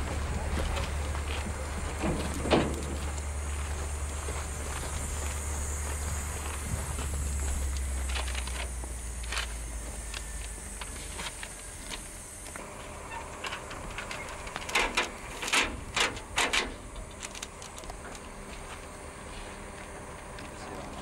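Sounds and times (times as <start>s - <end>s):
footsteps crunching on stones: 0.0s - 21.0s.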